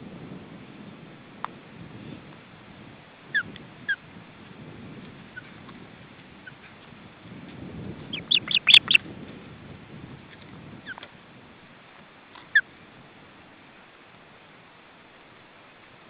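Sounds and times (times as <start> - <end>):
wind rumble on microphone: 0.0 - 16.0
osprey whistling calls: 8.1 - 9.0.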